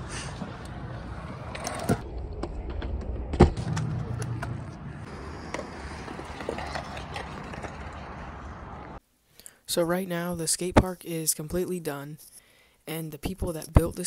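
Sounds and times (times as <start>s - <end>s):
scooter wheels rolling on concrete: 0.0s - 9.0s.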